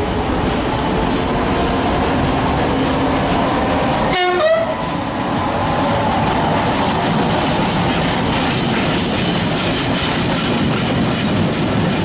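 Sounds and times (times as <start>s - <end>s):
train wheels rumbling on rail: 0.0s - 12.0s
locomotive horn toot: 4.1s - 4.9s.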